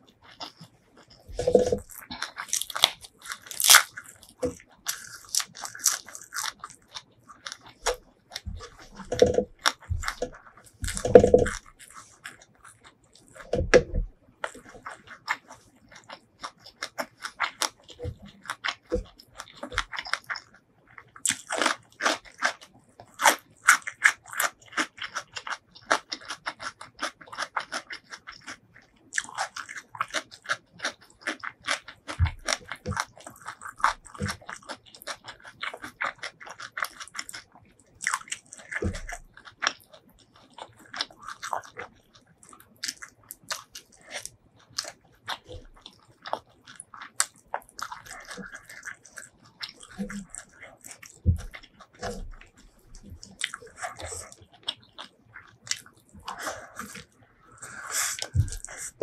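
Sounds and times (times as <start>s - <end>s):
person chewing crunchy food: 0.0s - 59.0s
wet mouth clicks: 46.3s - 59.0s.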